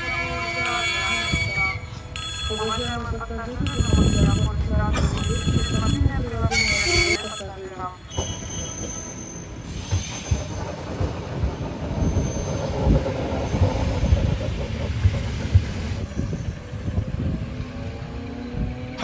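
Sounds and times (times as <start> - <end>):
train wheels rumbling on rails: 8.0 - 19.0.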